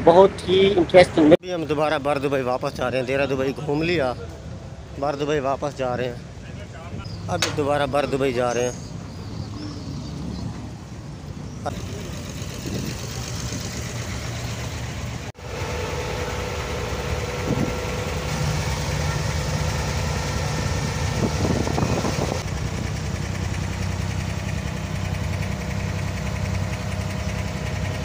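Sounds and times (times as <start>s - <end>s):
boat diesel engine running: 7.0s - 9.9s, 11.6s - 28.0s.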